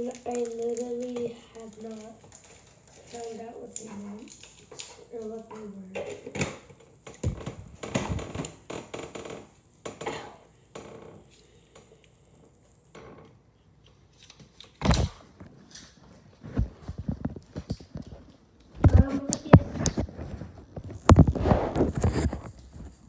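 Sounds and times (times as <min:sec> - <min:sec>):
small hard items clattering: 0:00.0 - 0:08.6.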